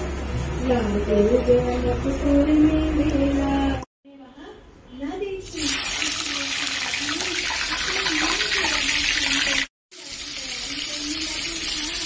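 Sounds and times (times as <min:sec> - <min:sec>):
fish sizzling in hot oil: 0:05.5 - 0:12.0.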